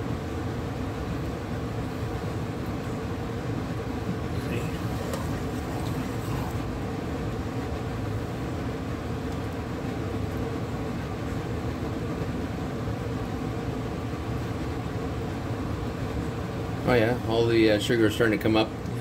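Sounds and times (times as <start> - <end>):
sugar and oil bubbling in pot: 0.2 - 10.9.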